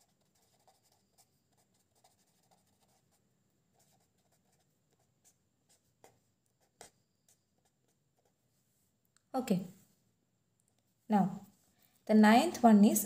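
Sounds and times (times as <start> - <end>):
pen scratching on paper: 0.0 - 8.4.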